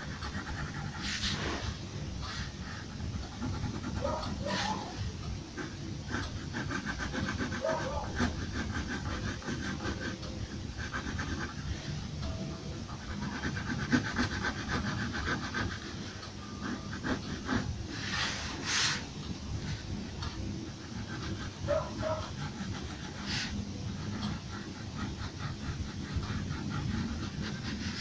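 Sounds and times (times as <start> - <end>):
low background hum: 0.0 - 28.0
pencil scratching on paper: 0.0 - 28.0.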